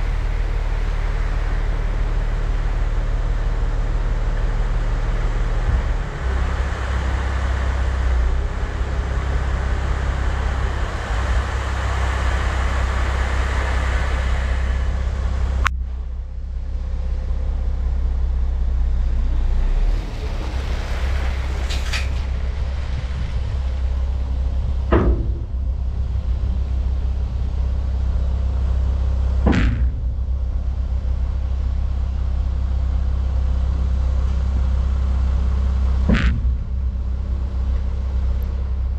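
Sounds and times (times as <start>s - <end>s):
loud rushing noise: 0.0s - 15.7s, 19.2s - 38.9s
truck engine rumbling: 0.0s - 38.9s
sharp knocks: 24.6s - 27.6s, 29.4s - 30.3s, 36.0s - 37.2s.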